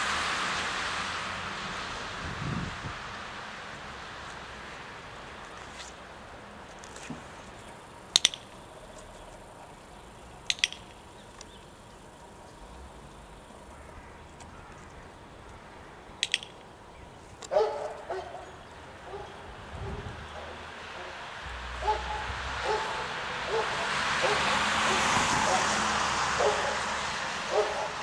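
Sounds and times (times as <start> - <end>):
training clicker double clicks: 8.1 - 8.6, 10.4 - 11.5, 16.2 - 16.6.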